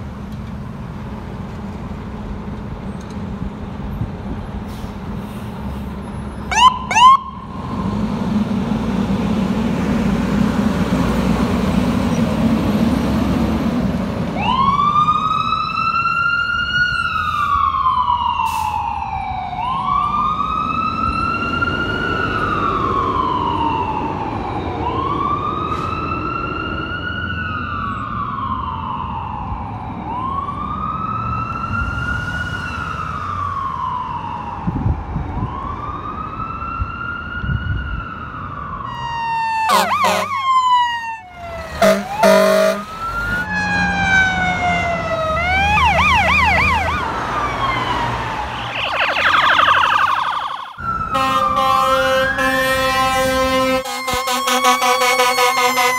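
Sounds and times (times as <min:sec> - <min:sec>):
diesel engine rumbling: 0:00.0 - 0:29.6, 0:37.4 - 0:55.9
siren chirps: 0:06.5 - 0:07.8, 0:14.4 - 0:55.9
siren wailing: 0:06.5 - 0:07.8, 0:14.4 - 0:55.9.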